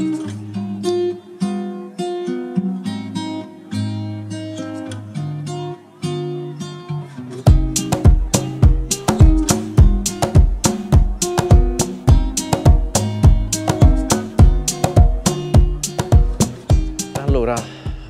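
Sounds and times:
acoustic guitar strumming: 0.0 - 18.0
low thumping beat: 7.5 - 18.0.

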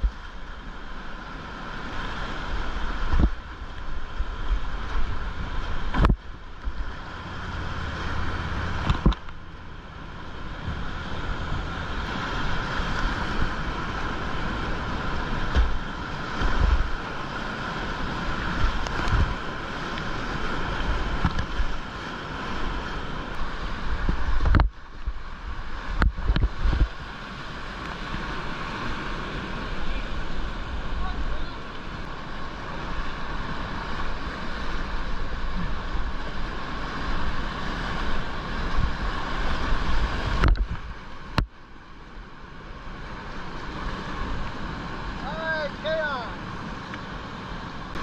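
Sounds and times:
rapids rushing: 0.0 - 48.0
wind buffeting microphone: 2.4 - 31.4.

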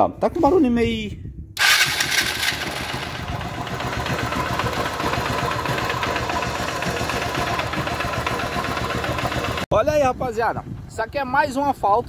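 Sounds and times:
motorcycle engine idling: 1.6 - 9.6
engine knocking: 1.6 - 9.7.

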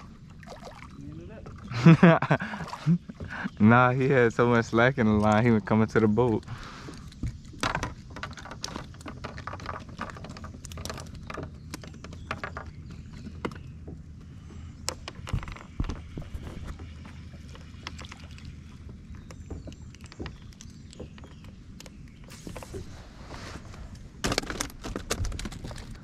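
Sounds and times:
steady low hum: 0.0 - 26.0
handling clicks and knocks: 4.4 - 14.2, 24.2 - 26.0.

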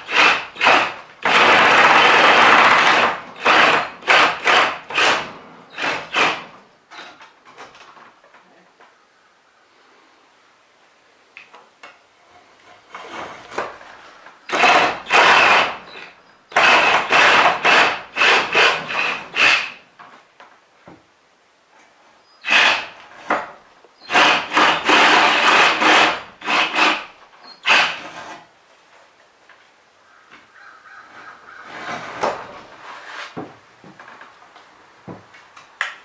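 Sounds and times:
reciprocating saw cutting wood: 0.0 - 6.5, 14.5 - 19.9, 22.4 - 28.5.

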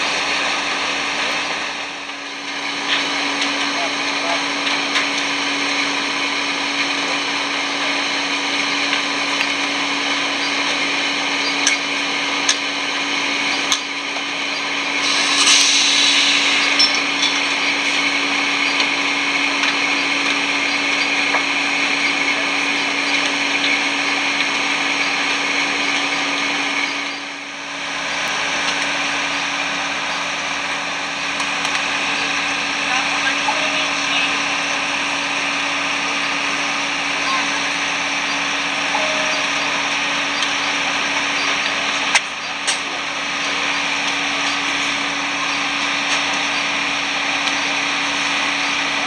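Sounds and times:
auxiliary power unit whine: 0.0 - 49.0
bright hissing rush: 14.9 - 18.0.

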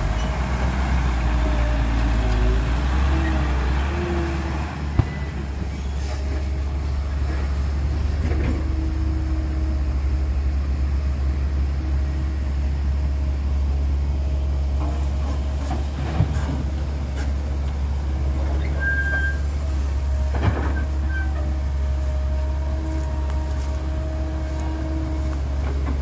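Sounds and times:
diesel engines rumbling: 0.0 - 26.0.

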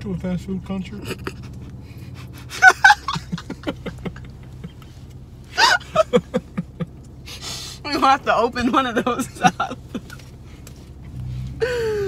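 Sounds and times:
low steady hum: 0.0 - 12.0
woman laughing: 1.0 - 4.9, 5.6 - 7.0, 7.9 - 10.2.

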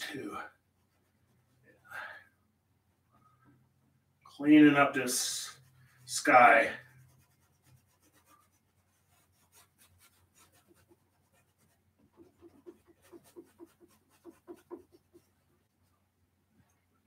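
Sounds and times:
paintbrush scratching on canvas: 0.1 - 1.9, 4.8 - 16.0.

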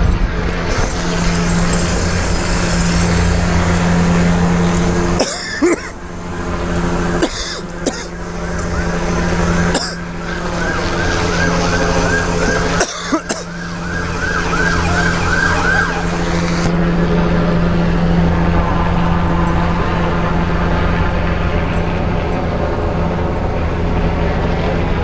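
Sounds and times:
steady low drone: 0.0 - 25.0
police siren yelping: 0.7 - 18.6.

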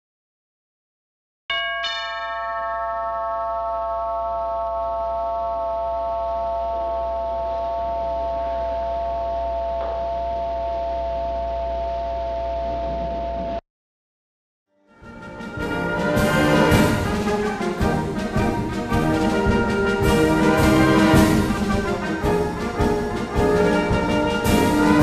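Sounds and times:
electronic bell-like chord: 1.5 - 12.7.

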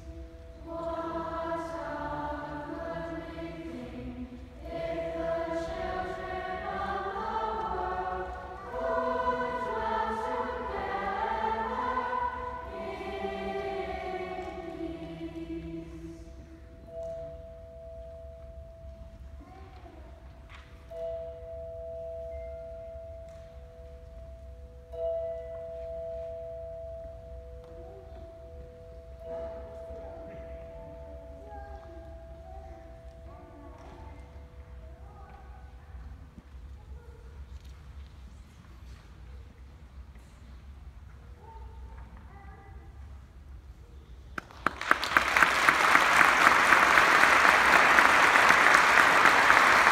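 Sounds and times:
children's choir singing: 0.0 - 18.2, 44.9 - 49.9
audience applause: 44.4 - 49.9.

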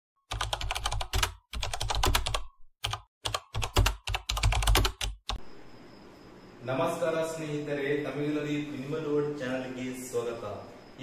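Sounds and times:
keyboard typing clicks: 0.3 - 5.4.

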